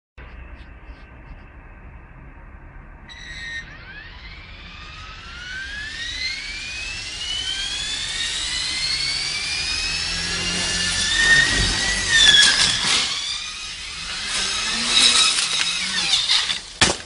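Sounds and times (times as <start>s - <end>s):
model helicopter rotor whine: 3.0s - 16.8s
helicopter crashing and clattering: 3.9s - 17.0s.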